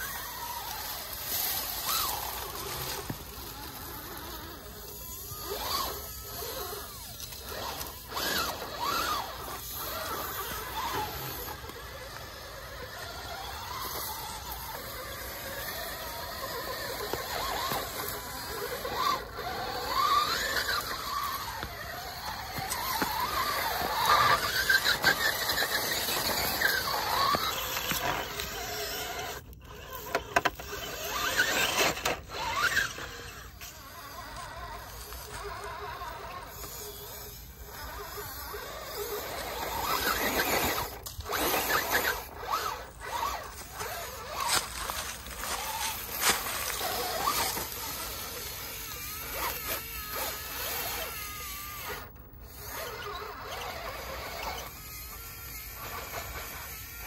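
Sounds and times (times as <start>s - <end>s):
rc car motor whine: 0.0s - 57.0s.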